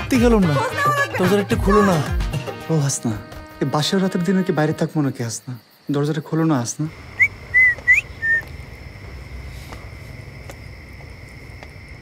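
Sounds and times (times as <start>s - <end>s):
night insects droning: 0.0s - 12.0s
person whistling: 7.2s - 8.5s.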